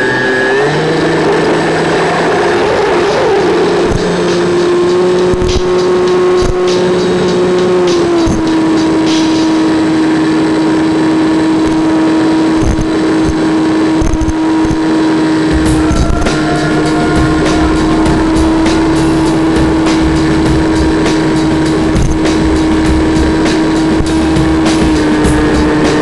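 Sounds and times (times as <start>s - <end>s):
electric motor and propeller whine: 0.0s - 26.0s.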